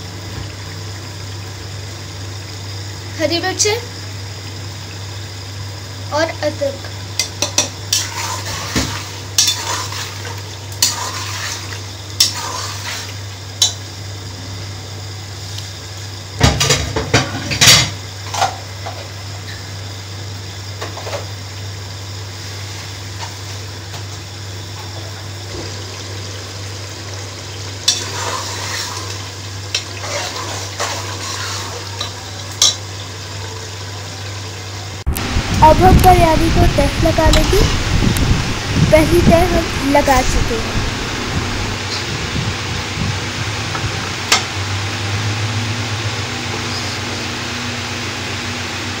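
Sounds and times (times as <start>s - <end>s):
steady low hum: 21.4s - 48.1s.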